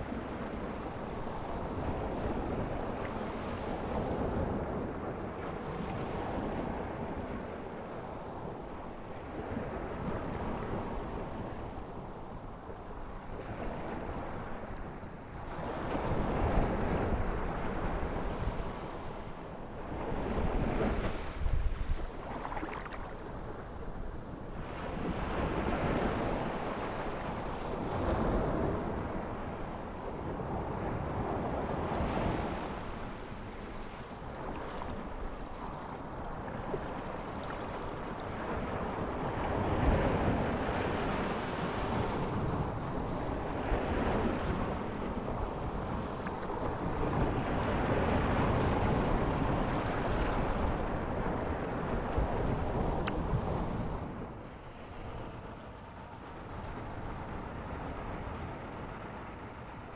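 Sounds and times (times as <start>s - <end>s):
ocean waves breaking: 19.9s - 24.0s.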